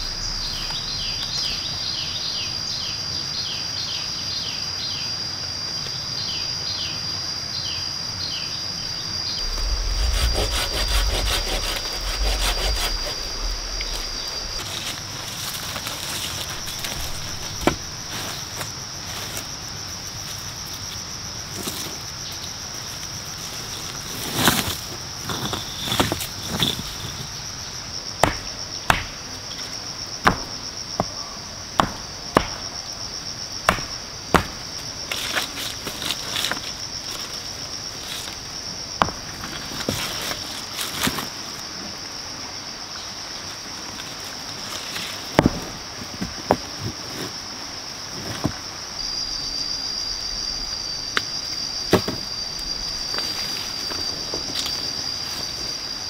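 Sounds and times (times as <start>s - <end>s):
insects chirring: 0.0s - 56.0s
stones knocking together: 45.4s - 47.0s.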